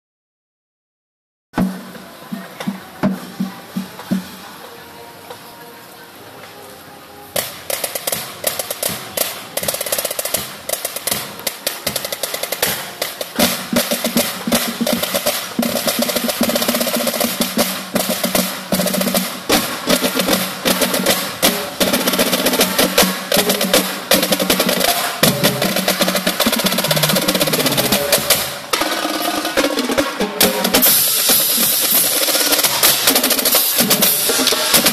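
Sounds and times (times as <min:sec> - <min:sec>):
snare drums: 0:01.6 - 0:04.4, 0:07.4 - 0:34.9
bass drums: 0:08.2 - 0:34.9
crash cymbals: 0:30.4 - 0:34.9.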